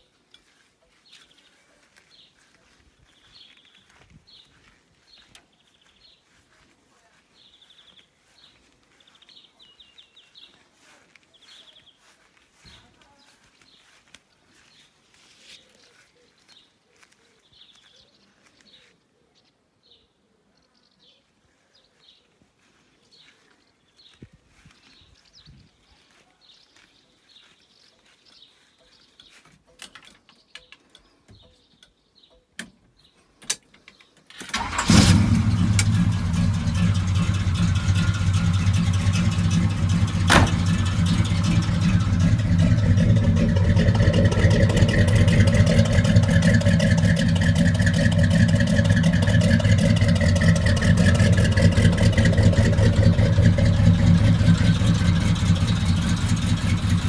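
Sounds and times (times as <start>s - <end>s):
car engine starting and idling: 34.4s - 57.0s.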